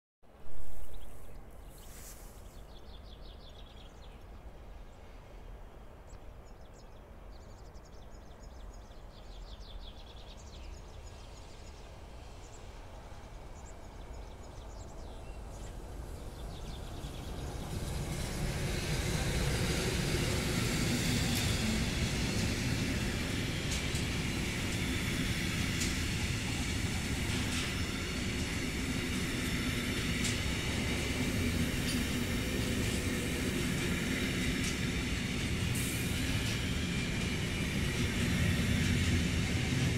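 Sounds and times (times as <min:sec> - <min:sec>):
electric locomotive approaching: 0:08.4 - 0:39.9.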